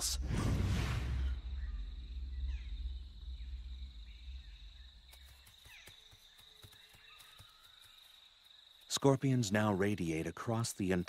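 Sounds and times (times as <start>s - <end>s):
low rumble: 0.0s - 5.2s
faint bird chirps: 1.2s - 8.9s.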